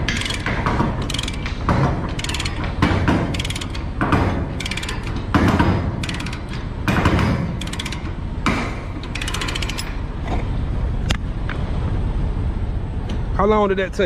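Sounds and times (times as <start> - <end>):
ratchet pawl clicks: 0.0 - 4.0, 4.6 - 5.3, 6.0 - 6.7, 7.6 - 8.2, 9.0 - 10.0
steel chain rattling: 0.0 - 6.8, 7.4 - 8.2, 9.0 - 10.0.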